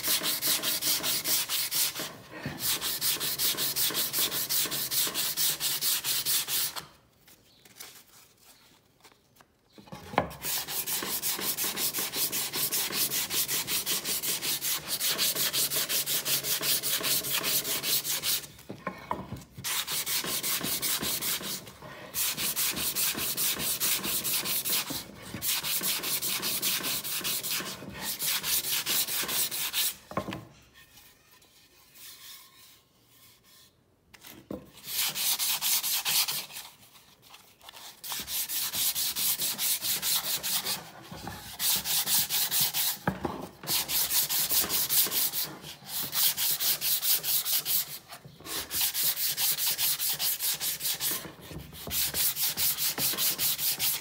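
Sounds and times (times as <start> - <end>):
sandpaper rubbing on wood: 0.0 - 6.8, 10.4 - 18.5, 19.6 - 30.0, 34.8 - 36.8, 37.8 - 43.0, 43.7 - 54.0.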